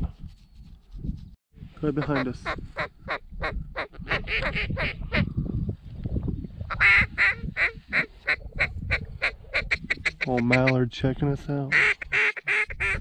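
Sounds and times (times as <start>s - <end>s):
goose honks and clucks: 2.0s - 5.3s.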